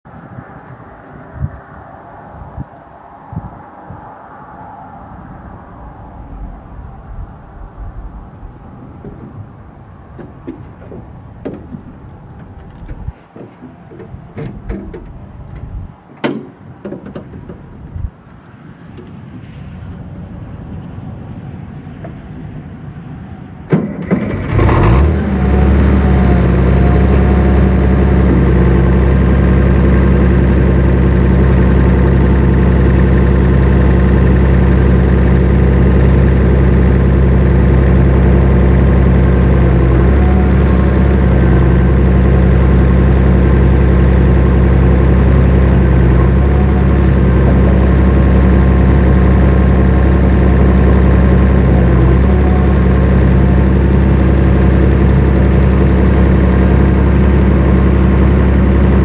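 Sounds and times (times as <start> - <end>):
tractor engine starting and running: 5.0 - 59.0
knocks and clicks: 9.0 - 9.5, 10.1 - 19.2.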